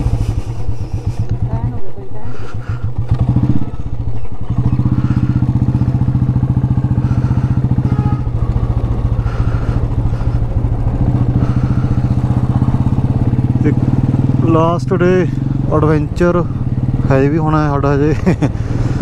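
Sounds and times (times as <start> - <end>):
motorcycle engine thumping: 0.0 - 14.5.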